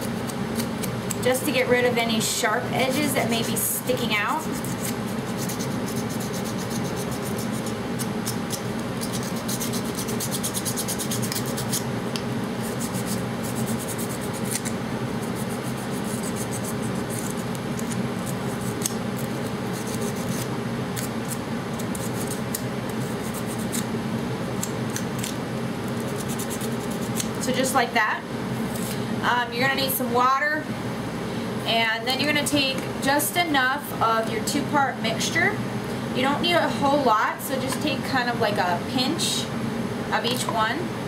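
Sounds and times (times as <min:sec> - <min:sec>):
heater running: 0:00.0 - 0:41.0
sandpaper scratching: 0:04.4 - 0:07.8, 0:09.0 - 0:11.8, 0:12.6 - 0:17.5, 0:19.7 - 0:20.5, 0:21.3 - 0:22.4, 0:26.0 - 0:27.2.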